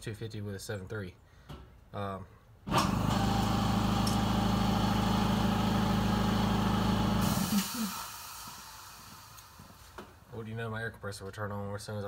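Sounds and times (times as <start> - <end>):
air compressor humming: 2.7 - 10.2
hiss of released air: 7.2 - 10.0.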